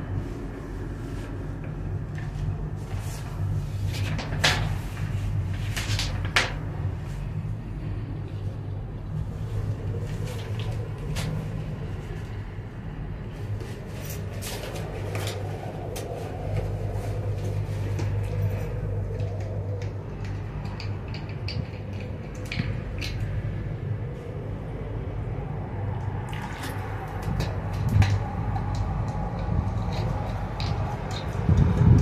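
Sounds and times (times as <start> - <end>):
gondola cabin humming along cable: 0.0 - 32.0
cabin clicks and creaks: 13.5 - 24.1.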